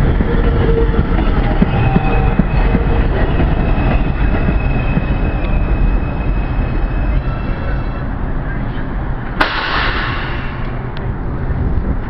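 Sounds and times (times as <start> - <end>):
train wheels rumbling on rail: 0.0 - 12.0
rail-joint clicks: 9.2 - 11.1.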